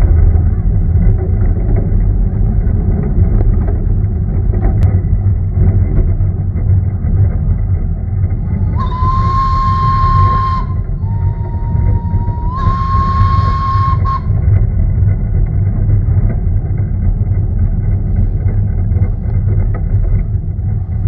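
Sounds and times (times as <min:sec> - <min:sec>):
steam locomotive rumbling: 0:00.0 - 0:21.0
steam whistle blowing: 0:08.6 - 0:14.4.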